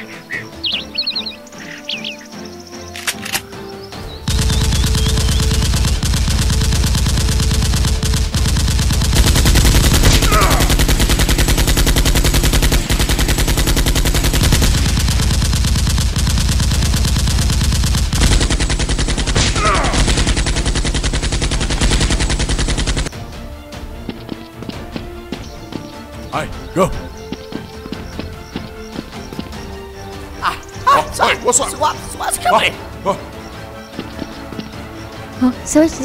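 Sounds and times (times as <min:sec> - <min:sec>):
machine-gun fire: 0:04.3 - 0:23.1.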